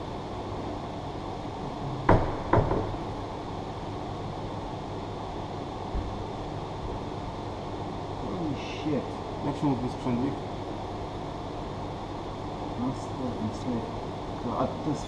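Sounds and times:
workshop hum: 0:00.0 - 0:15.0
sharp knocks on metal: 0:02.1 - 0:03.0.

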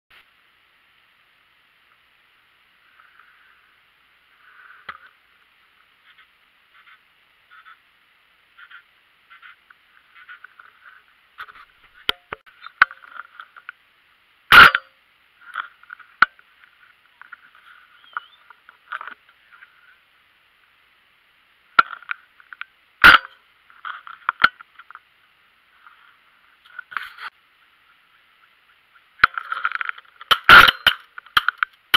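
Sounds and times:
shotgun shots: 0:30.3 - 0:31.0.

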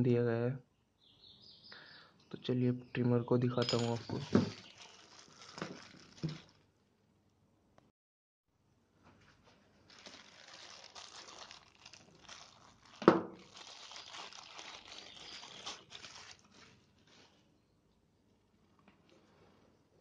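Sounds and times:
plastic bag crinkling: 0:03.6 - 0:06.7, 0:09.5 - 0:17.4.

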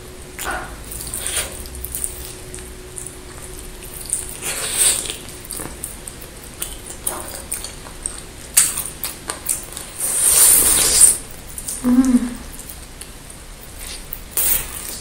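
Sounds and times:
wet mouth chewing meat: 0:00.4 - 0:11.8
drawn-out wet mouth noise: 0:09.7 - 0:12.8.

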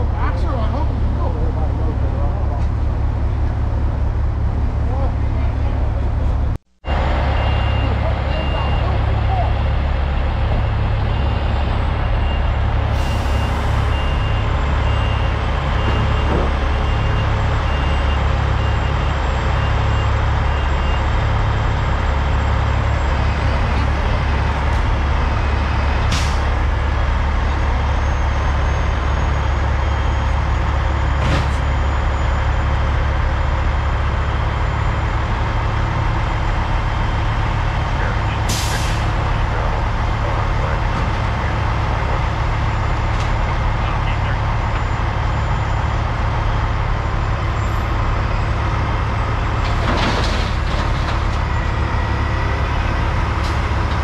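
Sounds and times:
heavy diesel trucks running: 0:00.0 - 0:54.0
backup alarm beeping: 0:06.9 - 0:09.2.

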